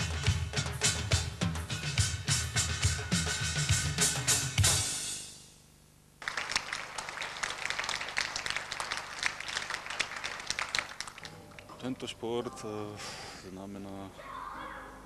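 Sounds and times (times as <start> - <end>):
background music with drums: 0.0 - 5.4
crowd applauding: 6.2 - 12.0.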